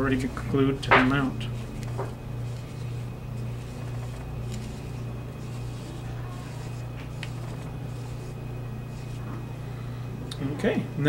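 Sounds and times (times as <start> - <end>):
foam brush dabbing on paper: 0.0 - 9.4
steady low hum: 0.0 - 11.0.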